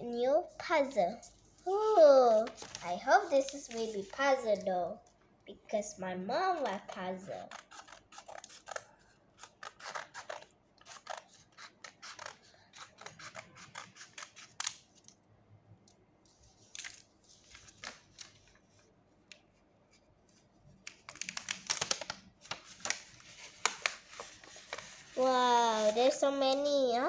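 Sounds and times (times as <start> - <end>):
paper rustling and crinkling: 1.2 - 4.7, 6.6 - 15.1, 16.4 - 26.8
scissors snipping paper: 6.6 - 14.8.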